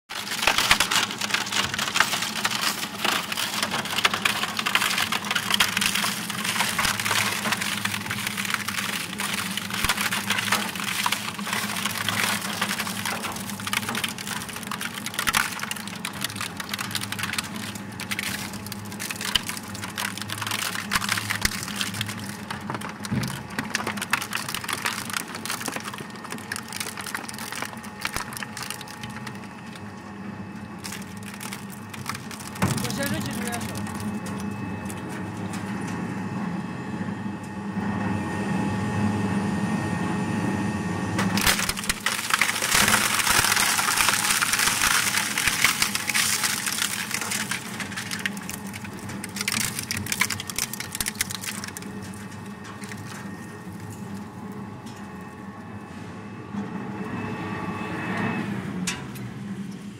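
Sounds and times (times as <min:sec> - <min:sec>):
shredder cracking and snapping scrap: 0:00.1 - 0:29.9, 0:30.8 - 0:35.6, 0:41.2 - 0:53.8.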